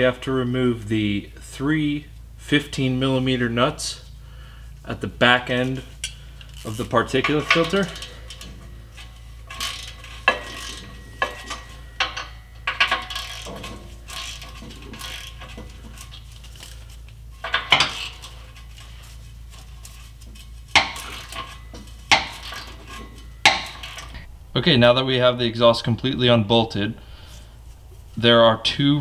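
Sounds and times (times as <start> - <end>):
metal clanks: 5.9 - 29.0.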